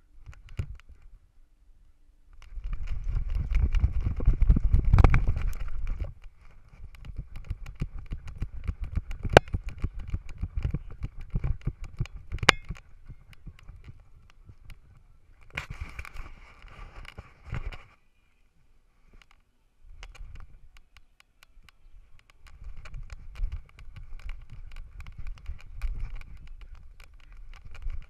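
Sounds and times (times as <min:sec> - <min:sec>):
wind rumbling on microphone: 0:00.0 - 0:01.3, 0:02.3 - 0:18.0, 0:19.8 - 0:20.8, 0:21.6 - 0:28.0
camera knocking and rattling: 0:02.4 - 0:17.9, 0:22.2 - 0:28.0.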